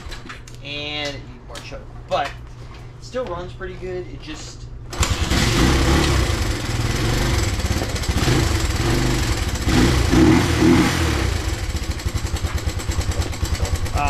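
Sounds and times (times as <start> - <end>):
single-cylinder engine idling on choke: 4.9 - 10.2, 11.2 - 14.0.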